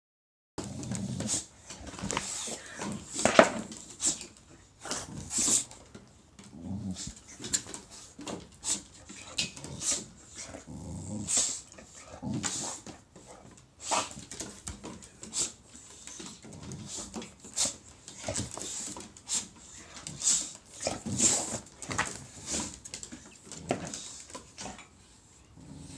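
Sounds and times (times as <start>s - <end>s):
dog growling: 0.6s - 1.5s, 6.4s - 7.7s, 9.2s - 14.3s, 19.7s - 22.8s, 25.6s - 25.9s.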